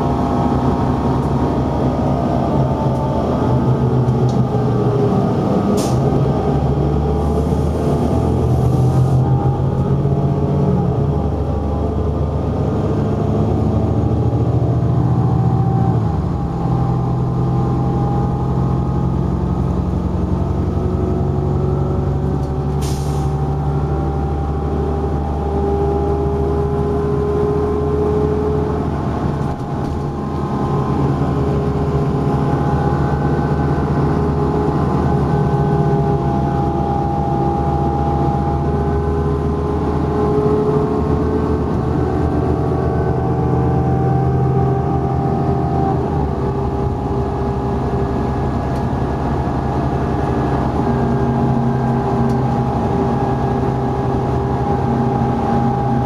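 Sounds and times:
bus diesel engine running: 0.0 - 56.0
road noise: 0.0 - 56.0.

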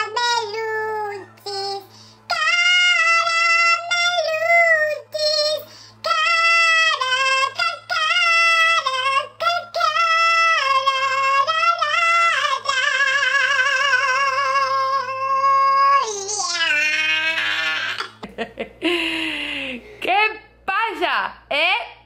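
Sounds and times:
woman singing: 0.0 - 16.1.

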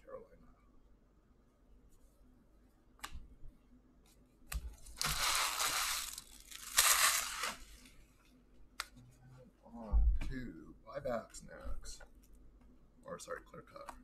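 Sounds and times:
packaging crinkling and tearing: 4.9 - 7.8.

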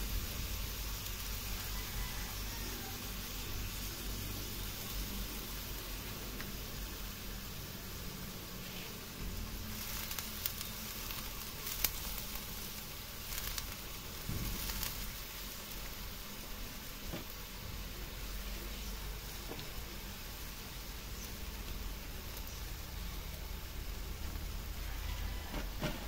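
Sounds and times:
sharp crackles: 0.0 - 26.0
squid sizzling in a wok: 0.0 - 26.0.

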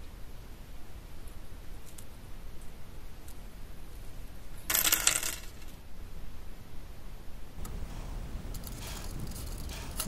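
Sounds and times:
wire pins clinking: 7.6 - 10.0.

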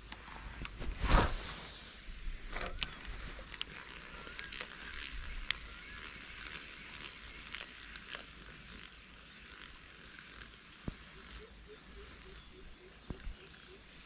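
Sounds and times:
wavering chirping calls: 11.1 - 14.0.

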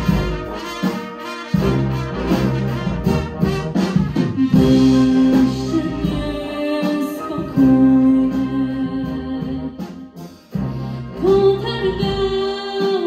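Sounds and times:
wind band accompaniment: 0.0 - 13.0
woman singing through microphone: 4.4 - 9.8, 11.2 - 13.0.

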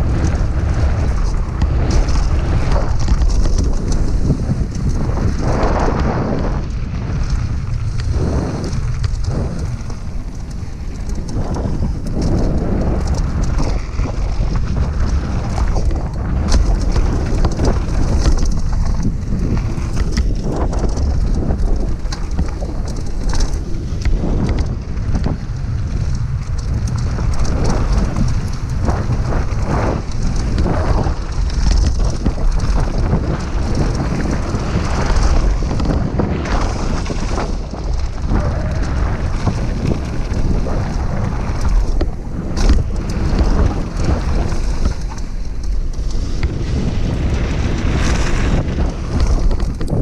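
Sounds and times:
bike clattering over bumps: 0.0 - 50.0
tyres crunching over gravel: 0.0 - 50.0
wind buffeting microphone: 0.0 - 50.0.

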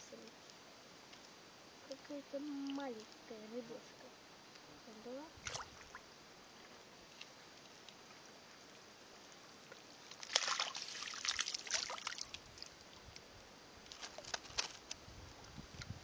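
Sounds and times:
net splashing through water: 5.4 - 6.0, 10.0 - 13.0.

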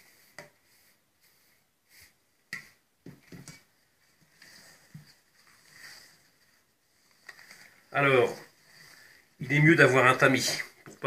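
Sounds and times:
spatula taps and scrapes: 0.0 - 6.1, 10.2 - 11.0.

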